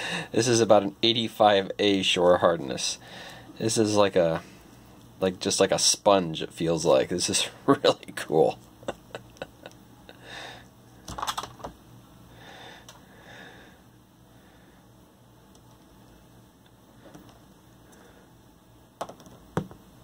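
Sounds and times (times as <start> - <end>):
soft breaths: 3.0 - 3.6, 10.1 - 11.0, 12.3 - 15.1, 16.8 - 18.5.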